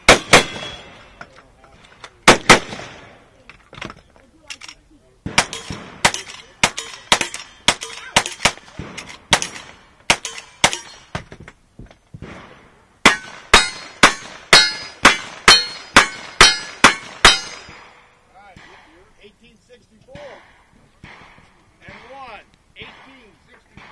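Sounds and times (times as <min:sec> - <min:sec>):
rifle gunshots: 0:00.0 - 0:01.0, 0:02.2 - 0:03.2, 0:05.2 - 0:11.1, 0:12.2 - 0:18.0, 0:20.2 - 0:23.9
steel targets ringing: 0:00.1 - 0:01.2, 0:13.0 - 0:18.0.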